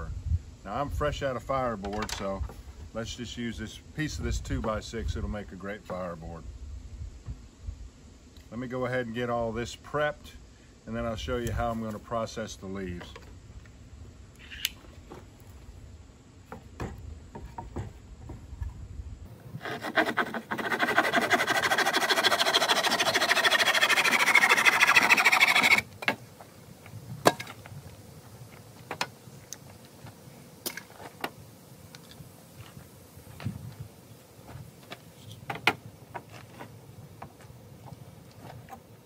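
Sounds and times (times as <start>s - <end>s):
wood and tools knocking: 16.5s - 18.7s
hand saw cutting wood: 19.5s - 25.9s.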